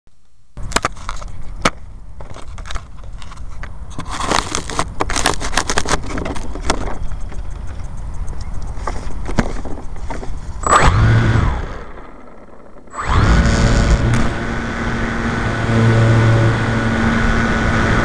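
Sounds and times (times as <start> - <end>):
steady low rumble: 9.8 - 18.0.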